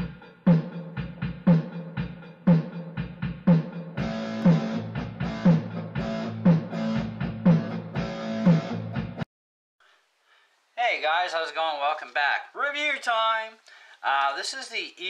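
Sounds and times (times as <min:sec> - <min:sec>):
steady drum beat: 0:00.0 - 0:09.2
band playing: 0:04.0 - 0:09.2.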